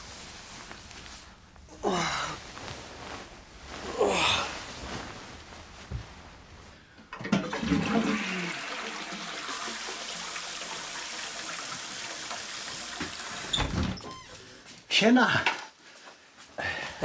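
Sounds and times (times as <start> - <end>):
toilet flushing: 7.1 - 13.6
running water hiss: 8.0 - 13.7.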